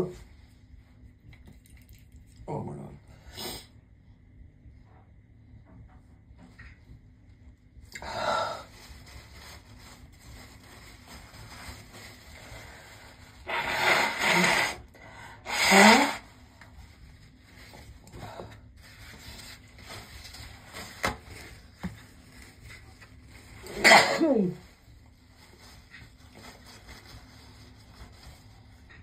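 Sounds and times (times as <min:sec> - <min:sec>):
woman sneezing loudly: 0:23.7 - 0:24.6.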